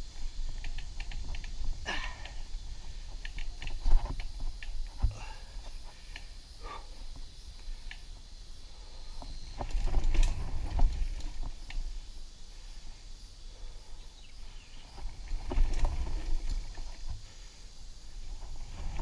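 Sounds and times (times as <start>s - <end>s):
bike clicks and rattles: 0.1s - 6.3s, 9.2s - 12.1s, 14.9s - 17.4s
bike tyres rumbling on dirt: 9.2s - 12.1s, 14.7s - 17.6s, 18.2s - 19.0s.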